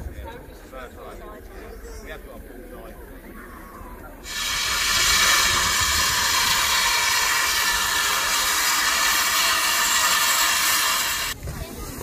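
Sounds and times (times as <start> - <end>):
steam hissing from locomotive: 4.2 - 11.4.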